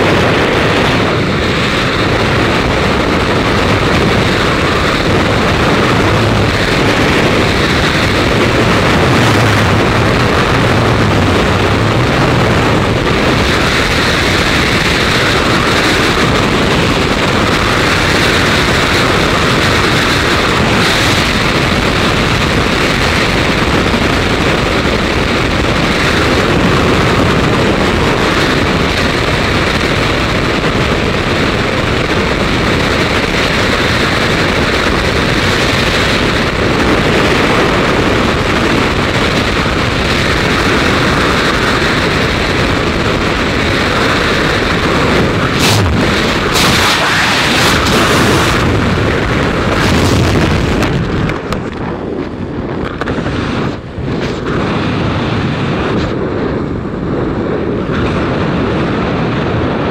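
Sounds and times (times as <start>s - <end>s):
sharp wind buffets: 0.0s - 59.9s
wind roaring over microphone: 0.0s - 59.9s
parachute opening: 44.0s - 55.0s.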